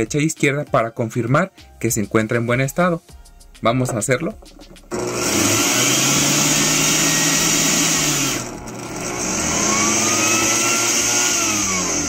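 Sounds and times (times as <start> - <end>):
blender motor spinning: 4.6 - 12.0.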